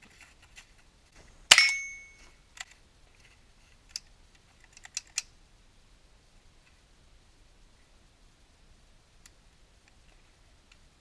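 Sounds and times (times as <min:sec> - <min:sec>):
rifle shot with metallic ring: 0:01.5 - 0:02.2
metallic clicks of rifle handling: 0:01.5 - 0:05.3.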